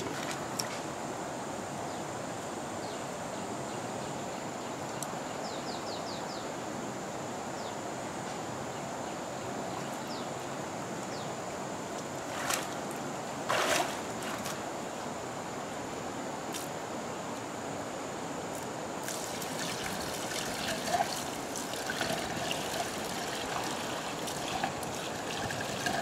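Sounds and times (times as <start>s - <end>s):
water sloshing: 19.0s - 26.0s.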